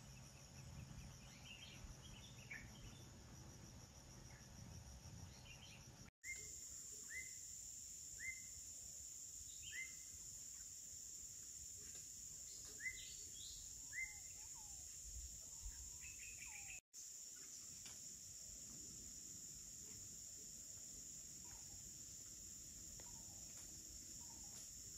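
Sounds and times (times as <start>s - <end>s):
high drone of insects: 0.0s - 24.9s
bird chirping: 9.5s - 10.7s, 12.4s - 16.8s.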